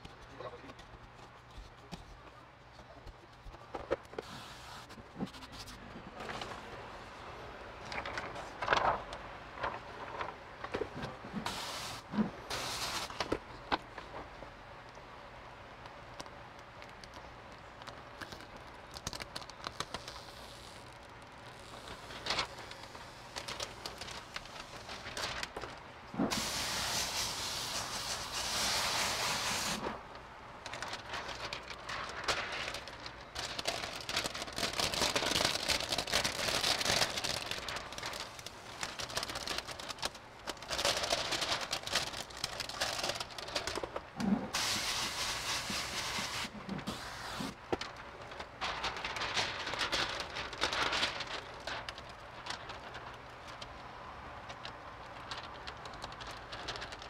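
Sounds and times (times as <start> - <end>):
water sprayer hissing: 4.2 - 4.9, 11.4 - 13.2, 26.3 - 30.0, 44.5 - 47.6.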